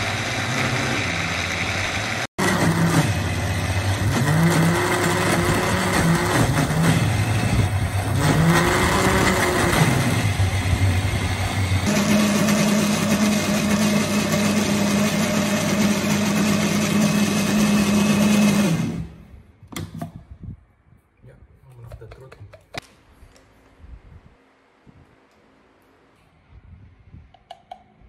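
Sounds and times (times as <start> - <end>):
blender motor grinding peanuts: 0.0 - 19.2.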